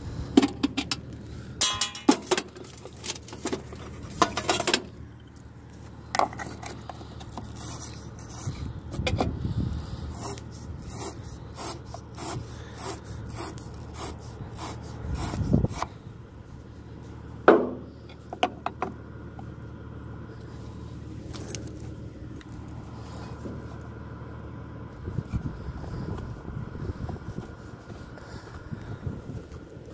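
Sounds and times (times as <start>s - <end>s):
metal scraping on battery terminal: 6.2s - 15.9s.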